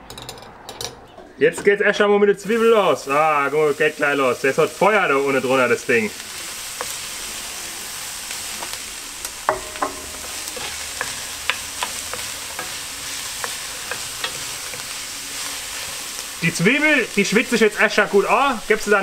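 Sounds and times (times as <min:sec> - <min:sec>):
onions sizzling in a pan: 0:02.4 - 0:19.0
wooden spoon scraping a pan: 0:06.2 - 0:08.8, 0:09.5 - 0:17.1.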